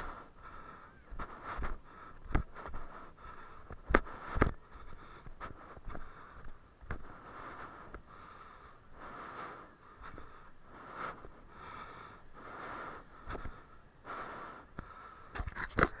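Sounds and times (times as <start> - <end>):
person breathing heavily: 0.0 - 16.0
footsteps on concrete: 1.1 - 8.1.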